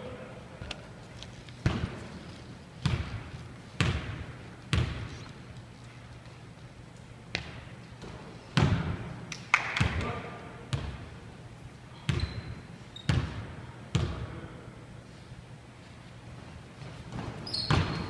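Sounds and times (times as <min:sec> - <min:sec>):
basketball bouncing on wooden floor: 0:01.6 - 0:02.1, 0:02.8 - 0:05.2, 0:12.1 - 0:14.2, 0:17.1 - 0:18.0.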